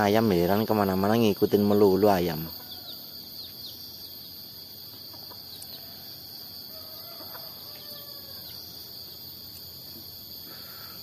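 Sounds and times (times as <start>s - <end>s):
high drone of insects: 0.0s - 11.0s
chickens calling softly: 4.8s - 6.1s, 6.7s - 8.7s.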